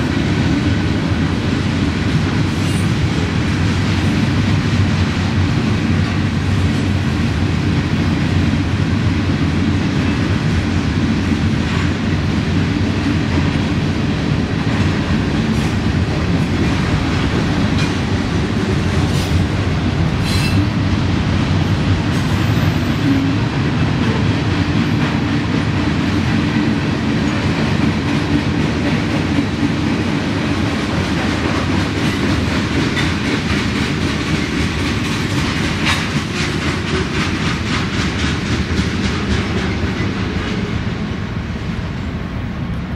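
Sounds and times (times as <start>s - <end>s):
train wheels rumbling on rail: 0.0s - 42.9s
wheels clacking over rail joints: 14.6s - 20.8s, 21.6s - 40.8s.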